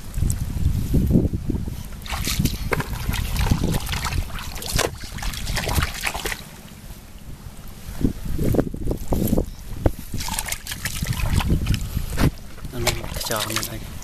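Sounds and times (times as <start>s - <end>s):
wind rumbling on microphone: 0.0s - 14.0s
muddy water splashing: 1.9s - 7.1s, 10.0s - 14.0s.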